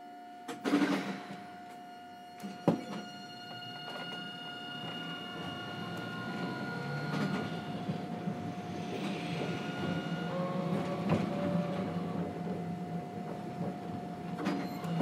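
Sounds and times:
tram inverter whining: 0:00.0 - 0:15.0
tram running gear rumble: 0:03.6 - 0:15.0.

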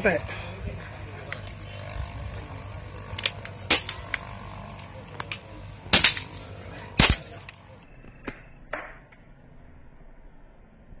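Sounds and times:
loud air rifle shots: 0:02.8 - 0:07.6
faint air rifle shots: 0:03.1 - 0:07.6.

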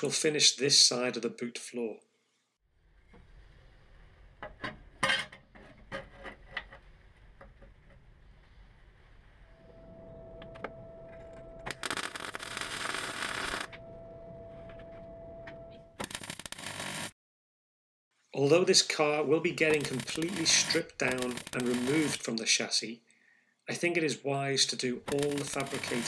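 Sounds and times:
welding arc crackle: 0:11.7 - 0:13.7, 0:16.0 - 0:17.2, 0:19.6 - 0:22.2, 0:25.1 - 0:26.0.

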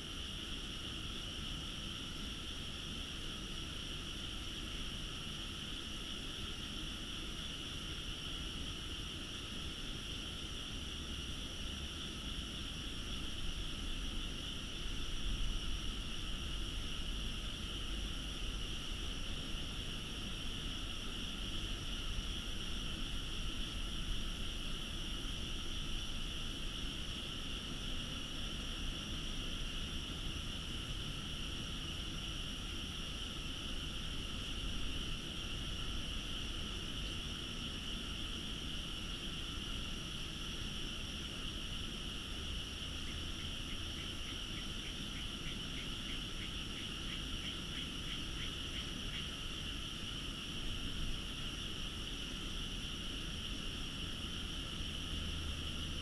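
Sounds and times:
frogs chorus: 0:00.0 - 0:56.0
nearby frog calling rapidly: 0:42.9 - 0:49.6.

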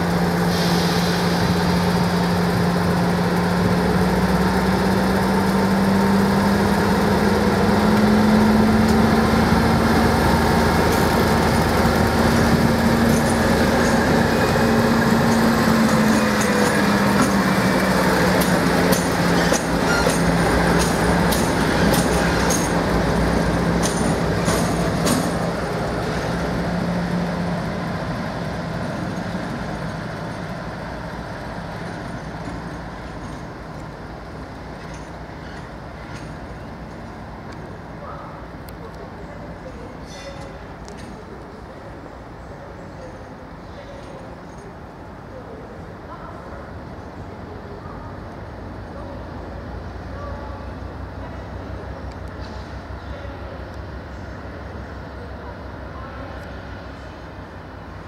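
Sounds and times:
diesel locomotive engine running: 0:00.0 - 0:58.0
wheels clicking on track: 0:01.3 - 0:37.7.

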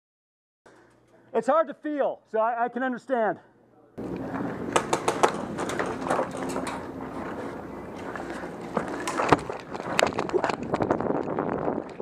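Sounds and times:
footsteps on dusty ground: 0:04.0 - 0:11.7.

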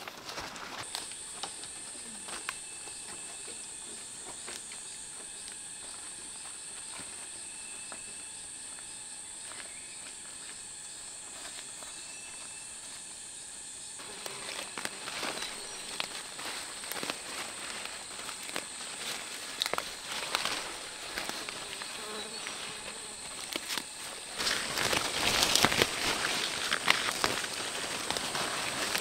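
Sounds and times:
high-pitched insect drone: 0:00.7 - 0:29.0
rustling and snapping of plants: 0:14.0 - 0:29.0.

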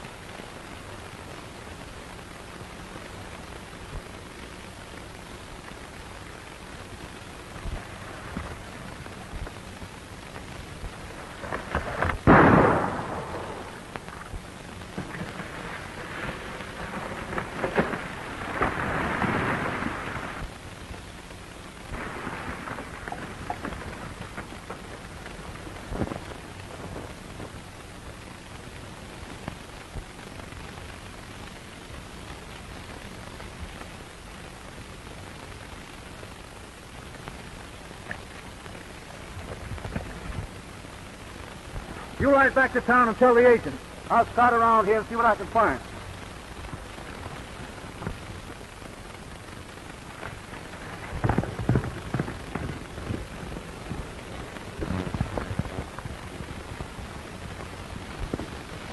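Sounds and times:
old film soundtrack hiss: 0:00.0 - 0:58.9
quieter bangs: 0:11.5 - 0:19.7
revolver shot with booming tail: 0:12.2 - 0:13.8.

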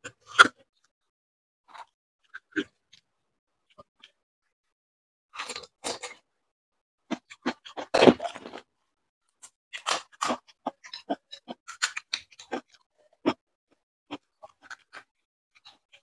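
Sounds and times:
crunching and chewing: 0:01.7 - 0:03.0, 0:05.4 - 0:06.2, 0:07.1 - 0:08.7, 0:09.4 - 0:13.4, 0:14.1 - 0:16.0.

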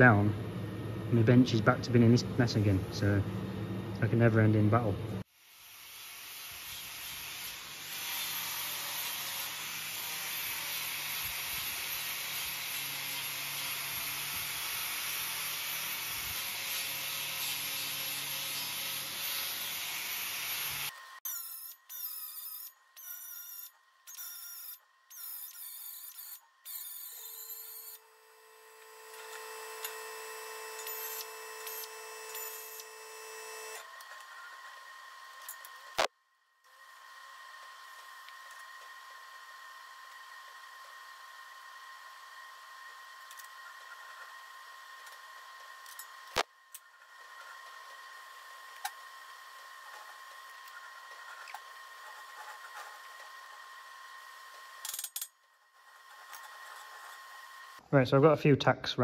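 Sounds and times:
humming welding arc: 0:05.4 - 0:22.5, 0:24.5 - 0:33.8
angle grinder grinding steel: 0:05.7 - 0:34.6.

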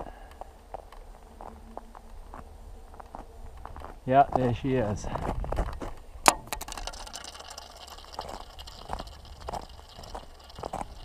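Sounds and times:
footsteps crunching on snow: 0:00.4 - 0:06.0, 0:10.6 - 0:11.0.

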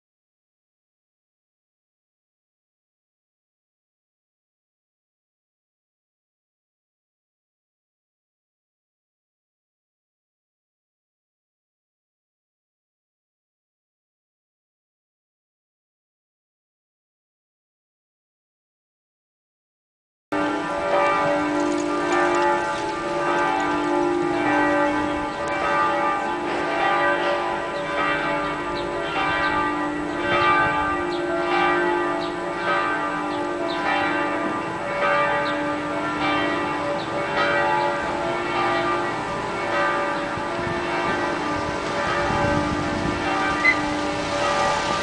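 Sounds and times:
church bells pealing: 0:20.3 - 0:45.0.

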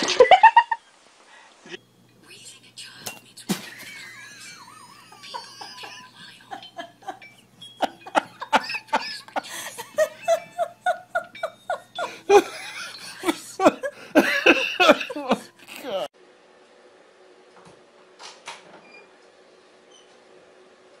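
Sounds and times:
person laughing hard: 0:03.7 - 0:07.2, 0:07.8 - 0:16.1.

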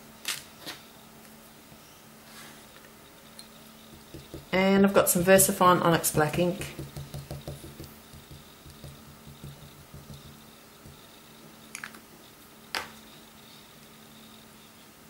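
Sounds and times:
ink pad patting on stamp: 0:03.9 - 0:04.6, 0:05.4 - 0:11.1.

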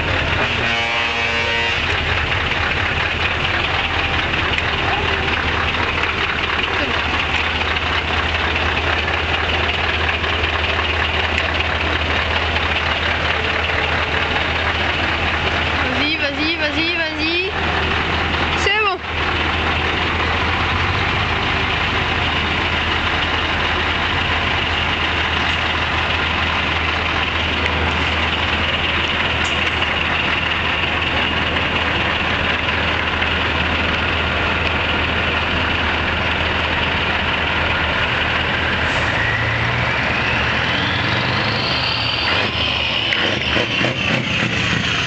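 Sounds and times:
truck engines passing: 0:00.0 - 0:45.0
whine rising in pitch: 0:39.1 - 0:45.0.

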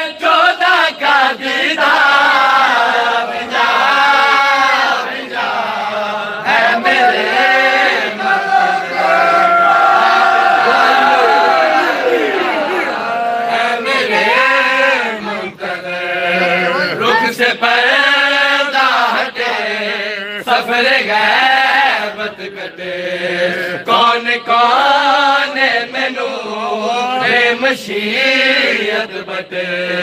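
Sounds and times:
men chanting unaccompanied: 0:00.0 - 0:30.0
lead voice on a microphone: 0:10.7 - 0:18.2.

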